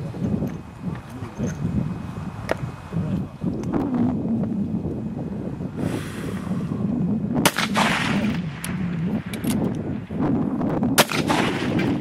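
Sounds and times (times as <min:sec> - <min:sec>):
rifle shots with echo: 0:07.4 - 0:09.5, 0:11.0 - 0:12.0.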